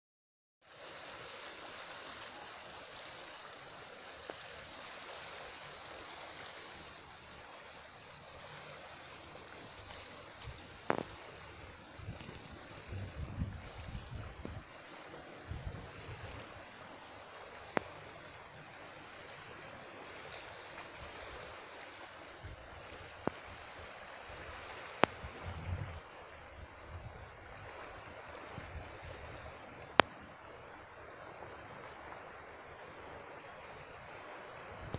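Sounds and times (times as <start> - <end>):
sea water washing against rocks: 0.6 - 34.9
wind hiss: 0.6 - 34.9
wind buffeting microphone: 9.7 - 16.7, 24.4 - 30.3.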